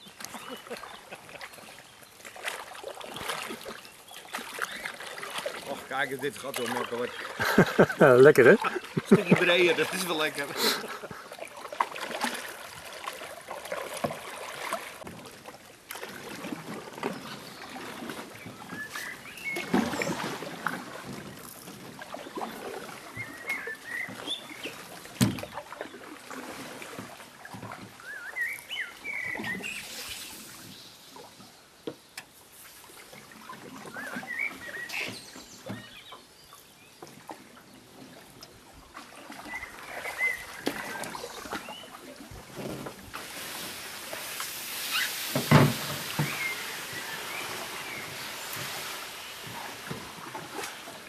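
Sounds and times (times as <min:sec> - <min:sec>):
paddle splashing in water: 0:00.0 - 0:51.0
reeds brushing along hull: 0:00.1 - 0:31.6, 0:38.9 - 0:51.0
birds chirping: 0:03.7 - 0:11.4, 0:18.4 - 0:20.2, 0:23.0 - 0:25.6, 0:28.0 - 0:31.2, 0:33.8 - 0:37.1, 0:46.0 - 0:50.0
knocks on canoe hull: 0:25.2 - 0:25.6, 0:45.4 - 0:46.4.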